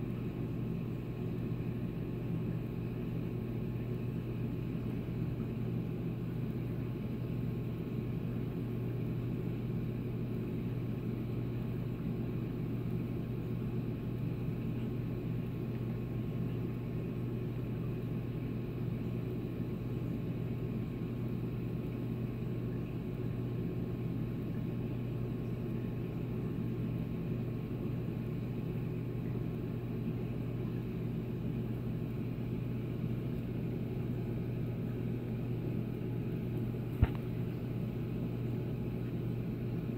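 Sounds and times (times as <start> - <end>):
aquarium pumps humming: 0.0 - 39.9.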